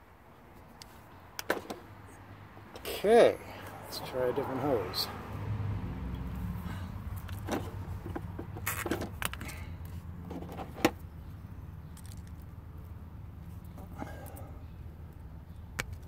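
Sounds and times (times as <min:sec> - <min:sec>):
plastic hose fittings clicking: 0:08.1 - 0:09.5.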